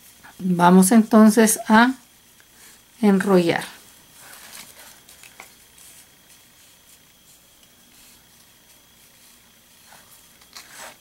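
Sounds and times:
ribbon rustling: 0:03.9 - 0:11.0.

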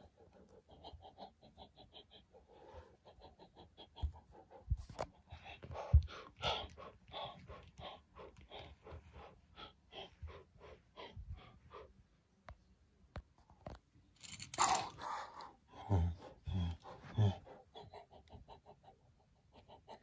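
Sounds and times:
rhythmic breathy puffs: 0:00.0 - 0:12.3, 0:14.2 - 0:20.0
person grunting: 0:15.8 - 0:17.4.

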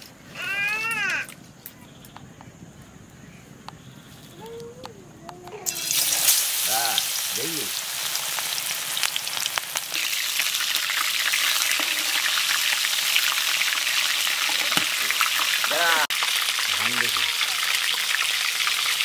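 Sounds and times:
food deep-frying in hot oil: 0:05.6 - 0:19.0.

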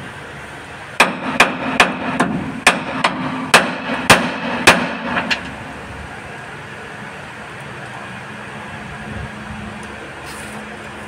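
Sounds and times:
hammer striking metal joint: 0:01.0 - 0:05.6.

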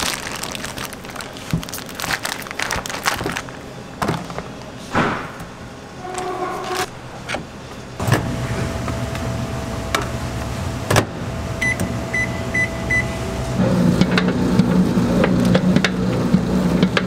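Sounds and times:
microwave oven humming: 0:00.0 - 0:17.0
dough mixer motor hum: 0:08.0 - 0:17.0.

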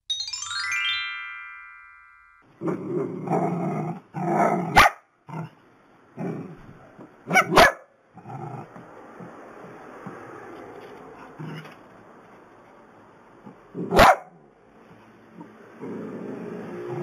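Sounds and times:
rising chiming notes: 0:00.0 - 0:02.5
dogs barking and growling: 0:02.6 - 0:05.6, 0:06.2 - 0:09.7, 0:13.7 - 0:14.4.

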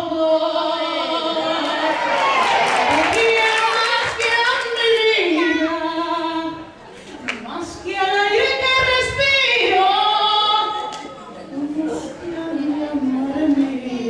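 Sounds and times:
woman singing through microphone: 0:00.0 - 0:14.0.

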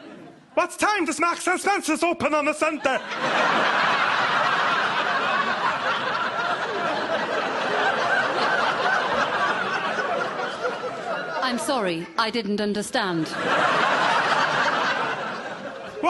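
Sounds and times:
audience laughing: 0:02.5 - 0:12.2, 0:13.1 - 0:16.0.

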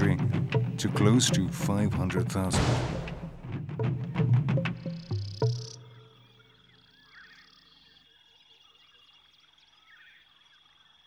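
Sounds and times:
music: 0:00.0 - 0:06.8
bird calls: 0:04.2 - 0:10.9.

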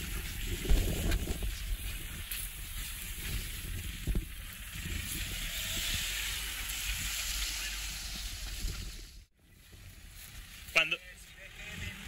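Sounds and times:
tyres hissing on sand and brush: 0:00.0 - 0:09.2
wind rumbling on microphone: 0:00.0 - 0:10.8.

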